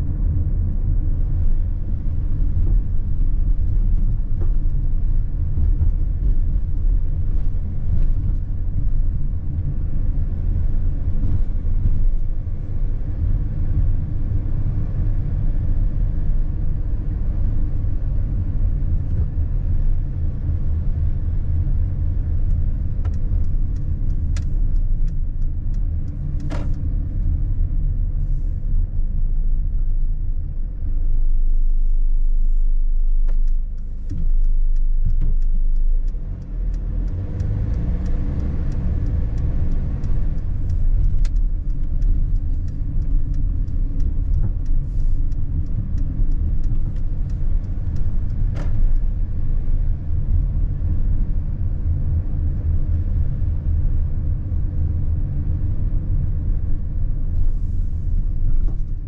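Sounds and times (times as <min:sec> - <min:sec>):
van engine and tyre rumble: 0:00.0 - 0:59.0
faint clicks: 0:33.2 - 0:49.2.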